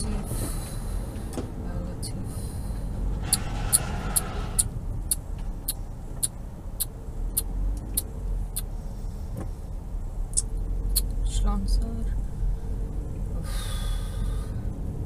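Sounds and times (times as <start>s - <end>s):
road noise inside moving car: 0.0s - 15.0s
turn signal ticking: 4.6s - 8.7s, 10.3s - 11.2s.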